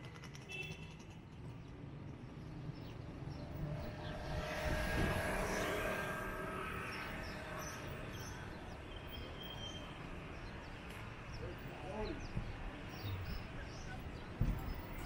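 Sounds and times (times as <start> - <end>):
motor scooter passing: 3.1 - 8.8.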